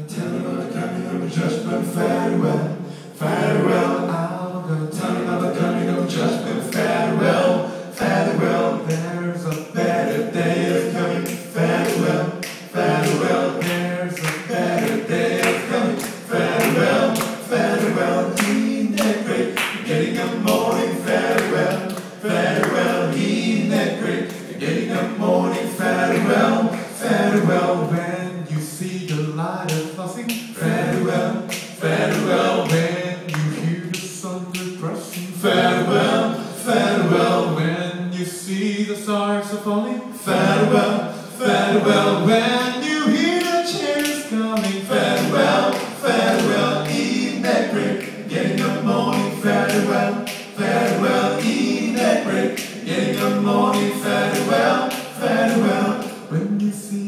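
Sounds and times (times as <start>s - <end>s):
men singing a cappella: 0.0s - 57.0s
steady beat of sharp clicks: 6.7s - 27.5s, 28.5s - 36.0s, 43.4s - 56.3s.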